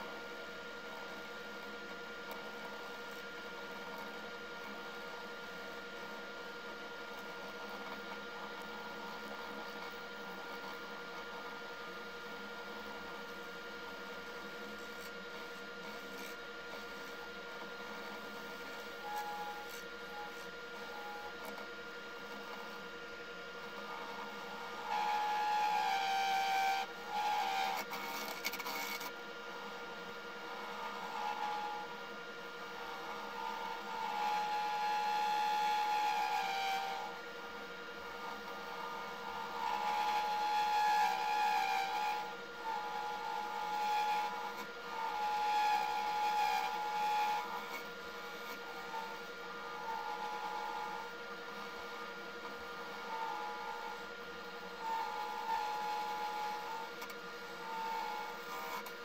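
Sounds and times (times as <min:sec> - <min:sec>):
gouge cutting resin with whine: 0:00.0 - 0:59.0
wood lathe humming: 0:12.2 - 0:59.0.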